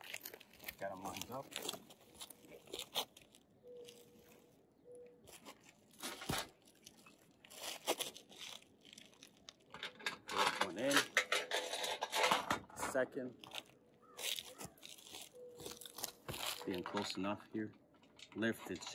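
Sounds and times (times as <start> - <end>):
metal rail knocking and scraping: 9.8 - 12.9.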